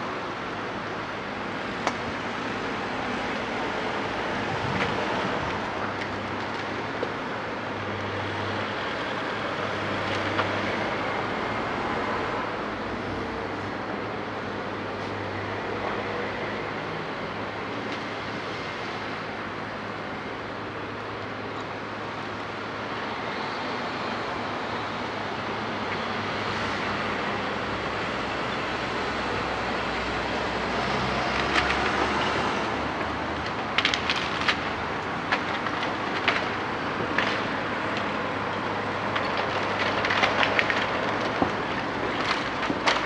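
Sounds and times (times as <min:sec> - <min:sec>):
timber cracking and knocking: 0:31.0 - 0:43.0.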